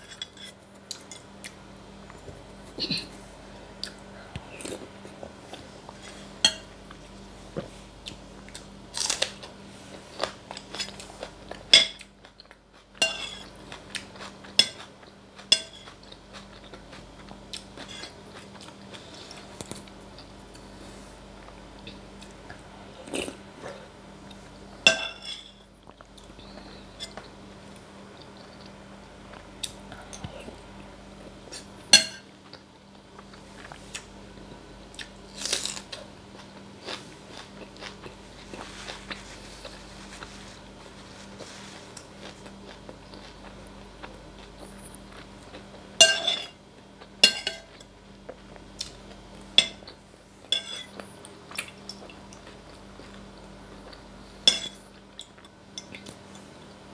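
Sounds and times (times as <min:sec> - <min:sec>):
chewing and eating: 0:03.8 - 0:24.5, 0:25.4 - 0:31.8, 0:34.9 - 0:46.0, 0:46.7 - 0:56.8
metal spoon clinking on bowl: 0:50.6 - 0:50.9.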